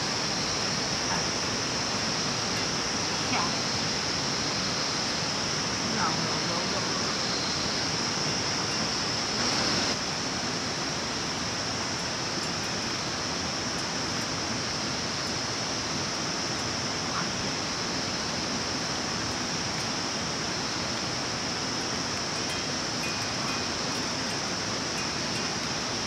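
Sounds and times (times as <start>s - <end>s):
outdoor background hiss: 0.0s - 26.0s.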